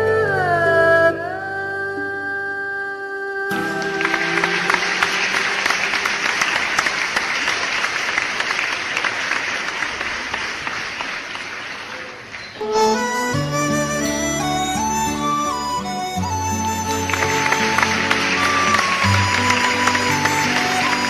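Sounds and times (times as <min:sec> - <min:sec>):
audience applauding: 0:03.5 - 0:21.0.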